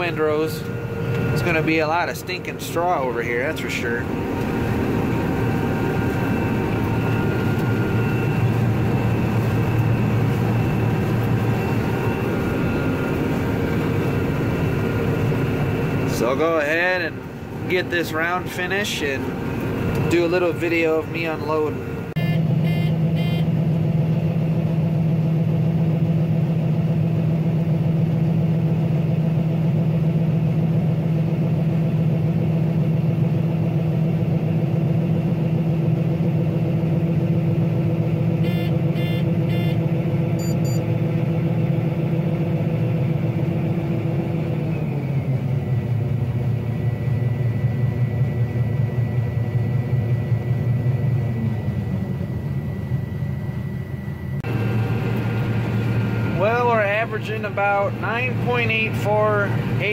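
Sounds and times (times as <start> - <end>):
combine harvester droning: 0.0 - 59.9.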